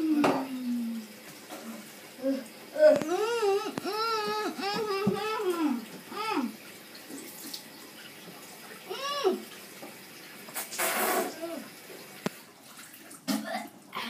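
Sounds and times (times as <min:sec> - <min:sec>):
tap water running: 0:00.0 - 0:14.0
boy groaning: 0:02.2 - 0:06.6, 0:08.9 - 0:09.4.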